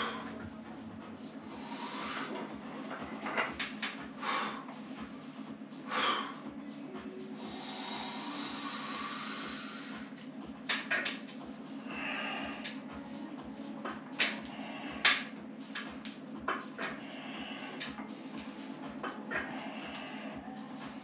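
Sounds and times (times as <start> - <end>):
man breathing hard: 0.0 - 10.2, 11.7 - 16.0, 16.6 - 21.0
low pulsing hum: 0.0 - 21.0
sharp snaps: 3.6 - 4.1, 10.6 - 11.4, 12.6 - 12.8, 14.1 - 16.2, 17.7 - 18.0.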